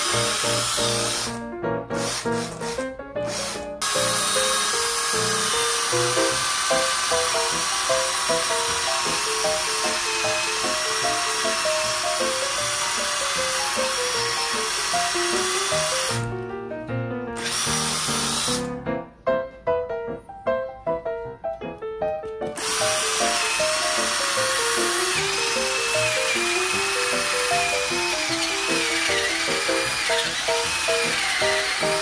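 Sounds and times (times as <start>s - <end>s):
drill boring through wood: 0.0s - 16.3s, 17.4s - 18.7s, 22.6s - 32.0s.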